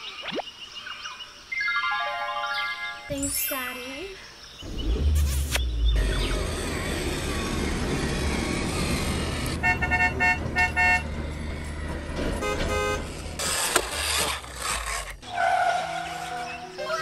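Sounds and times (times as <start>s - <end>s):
toy truck motor and tyres: 4.6s - 17.0s.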